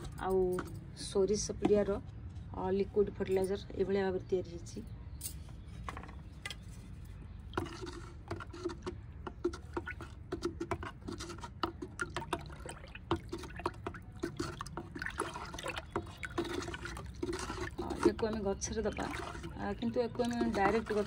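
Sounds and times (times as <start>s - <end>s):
liquid sloshing in a bucket: 6.6s - 21.0s.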